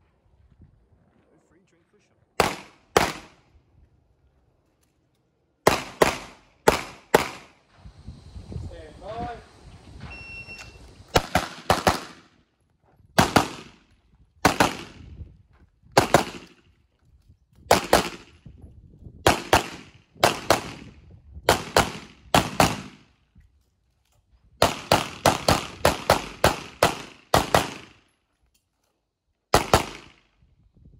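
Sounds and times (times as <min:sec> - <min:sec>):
handgun shots: 0:02.4 - 0:03.3.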